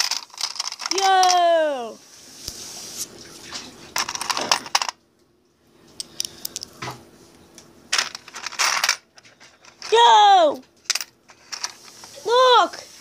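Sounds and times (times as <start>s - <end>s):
coins clinking and rattling: 0.0s - 1.5s, 4.0s - 5.0s, 7.9s - 10.2s, 10.9s - 12.0s.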